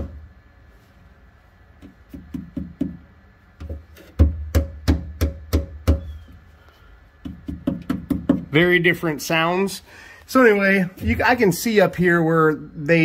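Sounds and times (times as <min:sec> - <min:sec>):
knuckles knocking on bare metal: 0:01.8 - 0:06.2, 0:07.2 - 0:08.5.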